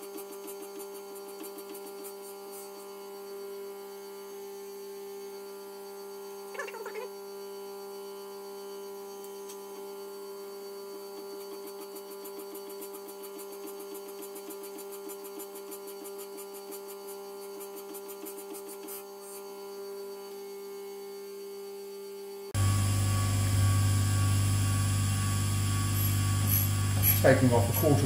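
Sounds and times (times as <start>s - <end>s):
grinder humming: 22.6s - 28.0s.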